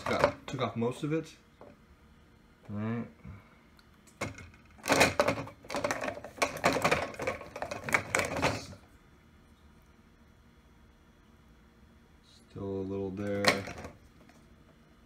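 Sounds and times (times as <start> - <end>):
plastic dishes clattering in a rack: 0.0 - 0.5, 4.2 - 8.8, 13.4 - 14.0.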